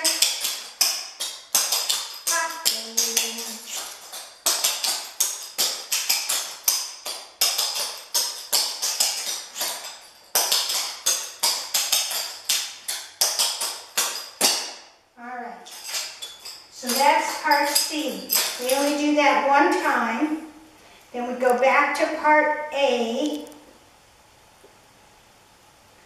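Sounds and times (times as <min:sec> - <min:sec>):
tap shoes clicking on concrete: 0:00.0 - 0:14.9, 0:15.6 - 0:19.9.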